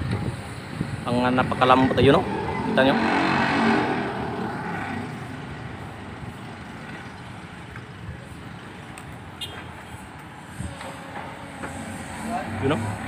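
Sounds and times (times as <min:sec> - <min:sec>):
vehicle engine passing by: 0:01.0 - 0:07.5, 0:11.7 - 0:13.0.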